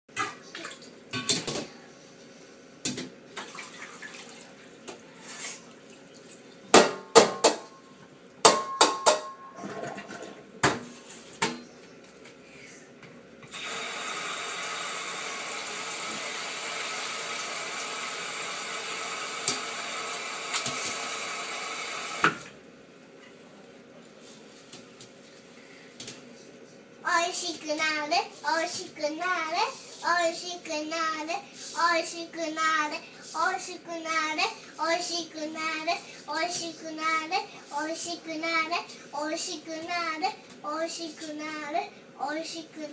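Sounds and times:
tap water running: 0:03.3 - 0:06.5, 0:13.4 - 0:22.6
tap shutting off click: 0:19.4 - 0:19.7.

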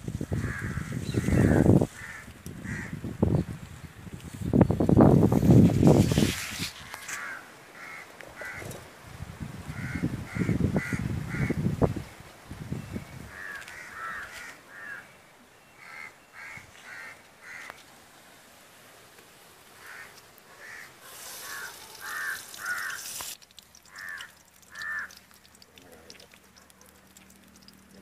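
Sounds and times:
bird calling: 0:13.3 - 0:17.8, 0:19.7 - 0:26.9
hissing noise: 0:21.0 - 0:23.4.

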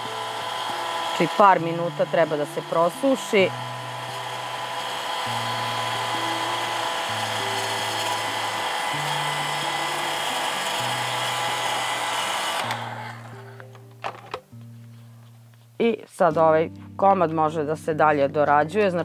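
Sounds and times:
hair dryer blowing: 0:00.0 - 0:13.7
soft background music: 0:00.0 - 0:19.0.

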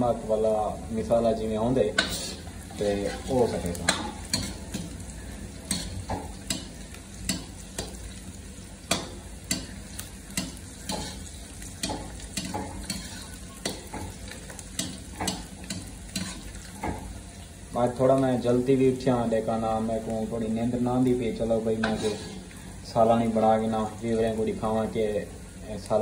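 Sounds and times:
onions sizzling in oil: 0:00.0 - 0:26.0
metal ladle scraping pan: 0:01.9 - 0:04.9, 0:05.7 - 0:08.0, 0:08.9 - 0:14.2, 0:14.8 - 0:17.1, 0:21.7 - 0:22.5.

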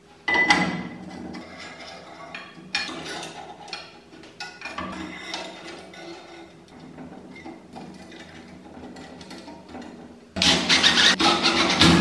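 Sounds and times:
metal knocking and scraping: 0:00.3 - 0:12.0.

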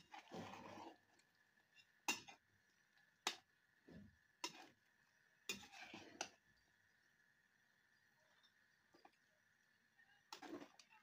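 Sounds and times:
ladle scraping and sloshing: 0:00.0 - 0:01.3.

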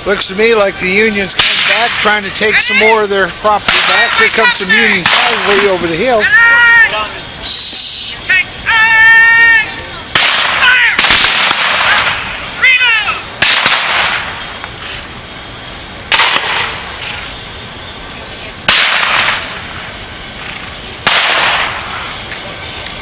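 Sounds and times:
gunshots: 0:01.3 - 0:02.2, 0:03.5 - 0:06.0, 0:10.1 - 0:12.4, 0:13.4 - 0:14.4, 0:16.1 - 0:16.9, 0:18.7 - 0:19.7, 0:21.0 - 0:22.1
loud wavering cries: 0:06.1 - 0:11.0.

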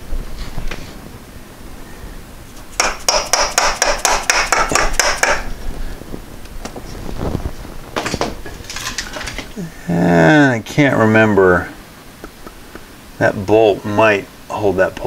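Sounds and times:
hammer striking metal pulley: 0:02.8 - 0:05.5.

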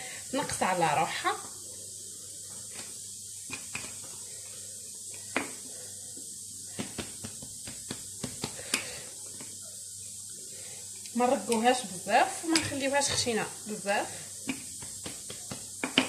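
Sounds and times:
steady faint hiss: 0:00.0 - 0:16.0
rolling pin tapping dough: 0:06.8 - 0:09.5, 0:14.4 - 0:16.0.

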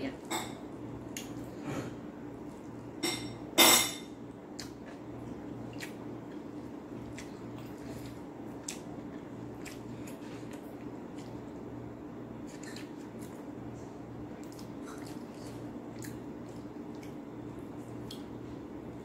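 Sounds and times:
tableware clattering: 0:03.0 - 0:04.1.

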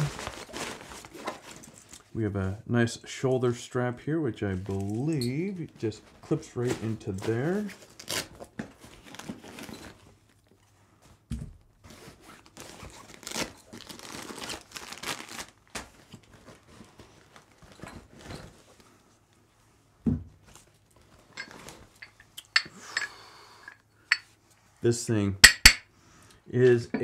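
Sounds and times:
nylon bag rustling and scraping: 0:00.0 - 0:01.9, 0:08.9 - 0:10.2.

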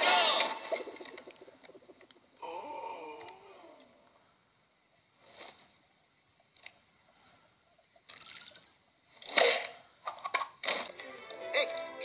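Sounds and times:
soft sound effects: 0:10.9 - 0:12.0.

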